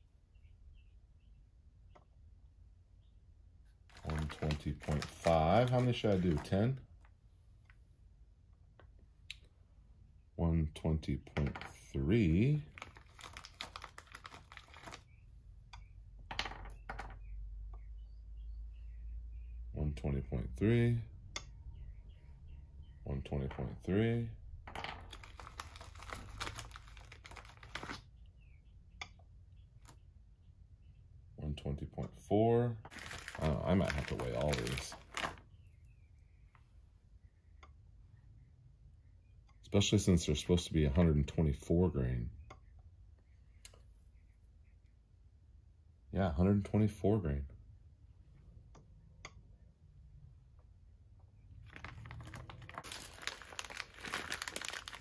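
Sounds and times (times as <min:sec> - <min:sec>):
plastic bag crinkling: 0:03.9 - 0:06.8, 0:12.7 - 0:15.1, 0:24.7 - 0:28.0, 0:32.9 - 0:35.5, 0:51.6 - 0:55.0.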